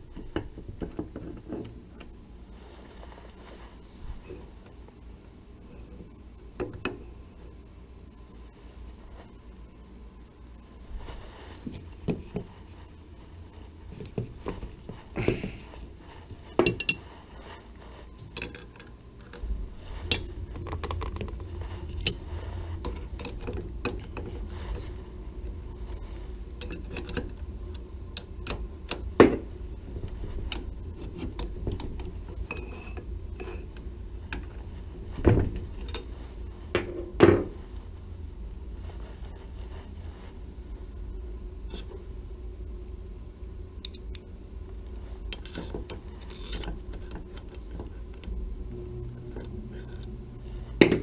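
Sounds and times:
tools clinking on metal: 16.6 - 17.0.

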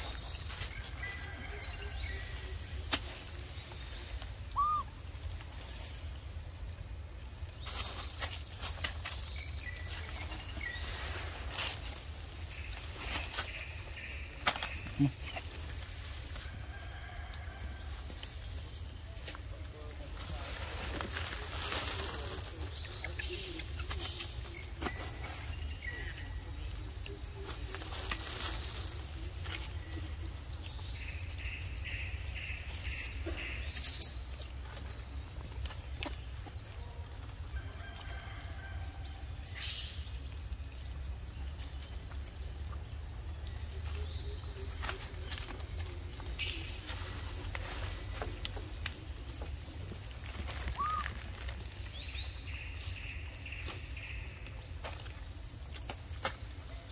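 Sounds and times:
insect drone: 0.0 - 56.9
bird calls: 3.9 - 5.0, 50.6 - 51.3.

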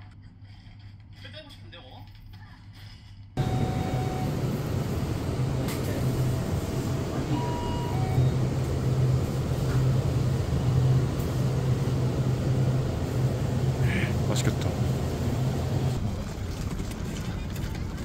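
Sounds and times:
refrigerator hum: 3.4 - 17.4.

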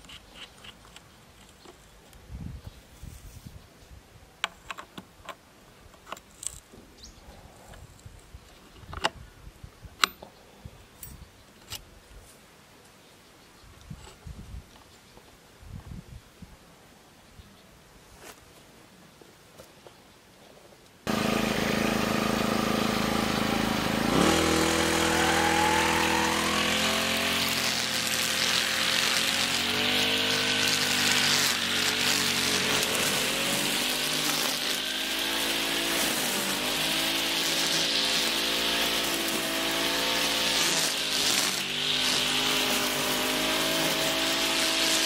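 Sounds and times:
brush cutter engine cutting grass: 21.1 - 45.0.

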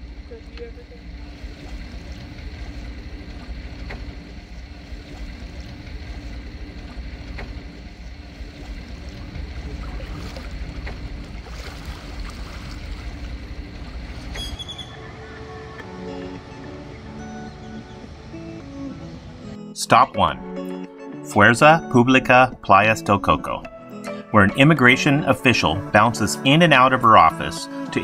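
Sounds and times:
sailboat rumble: 0.0 - 20.5
wind buffeting microphone: 1.2 - 16.0
water and wind rushing past: 1.3 - 19.4.

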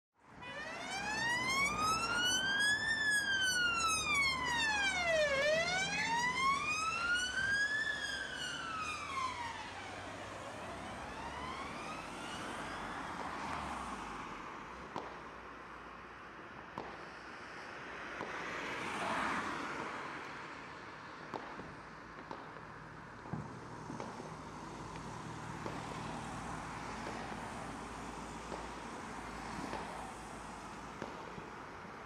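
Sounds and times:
police siren wailing: 0.3 - 13.6.

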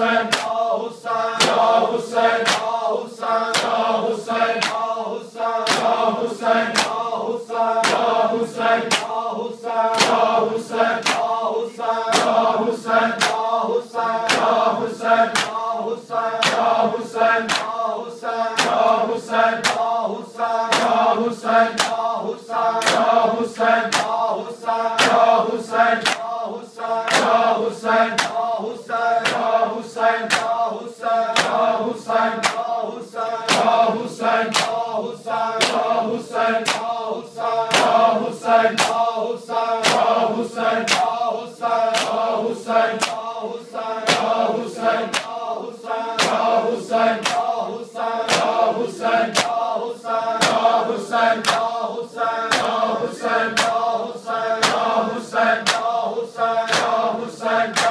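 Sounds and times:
men chanting in unison: 0.0 - 57.9
hands slapping chests: 0.2 - 0.6, 1.4 - 1.8, 2.4 - 2.8, 3.4 - 3.9, 4.5 - 5.0, 5.6 - 6.0, 6.7 - 7.1, 7.8 - 9.2, 9.9 - 11.4, 12.1 - 12.5, 13.1 - 13.6, 14.2 - 14.7, 15.3 - 15.7, 16.4 - 16.8, 17.4 - 17.8, 18.5 - 20.0, 20.7 - 21.1, 21.7 - 22.1, 22.8 - 23.2, 23.9 - 24.2, 25.0 - 25.4, 26.0 - 26.4, 27.1 - 27.4, 28.1 - 28.5, 29.2 - 29.6, 30.2 - 30.6, 31.3 - 31.7, 32.4 - 32.7, 33.5 - 33.8, 34.5 - 34.9, 35.6 - 36.0, 36.6 - 37.0, 37.7 - 38.1, 38.7 - 39.1, 39.8 - 40.2, 40.8 - 41.2, 41.9 - 43.3, 44.1 - 45.5, 46.2 - 47.6, 48.2 - 49.7, 50.4 - 51.8, 52.5 - 52.8, 53.4 - 53.9, 54.6 - 54.9, 55.6 - 56.0, 56.7 - 57.1.

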